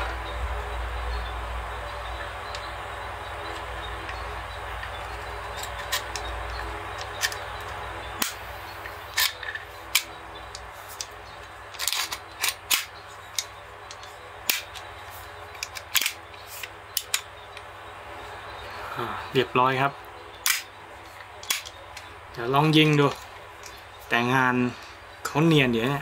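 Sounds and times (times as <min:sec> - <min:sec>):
metal clicks of pistol parts: 0:04.8 - 0:08.4, 0:09.1 - 0:14.8, 0:15.5 - 0:17.3, 0:20.4 - 0:20.7, 0:21.4 - 0:21.8.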